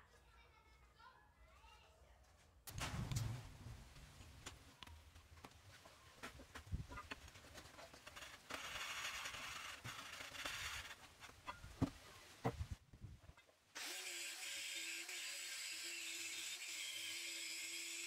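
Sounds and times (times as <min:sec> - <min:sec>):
stone block rubbing on steel: 0:07.9 - 0:11.9.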